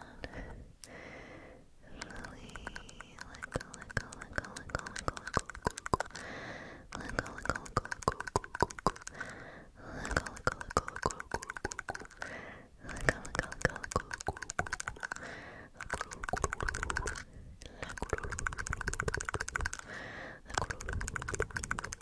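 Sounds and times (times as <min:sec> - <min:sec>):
tapping and scratching on camera: 0:02.0 - 0:06.2, 0:07.0 - 0:09.3, 0:10.0 - 0:12.2, 0:12.8 - 0:19.9, 0:20.5 - 0:22.0.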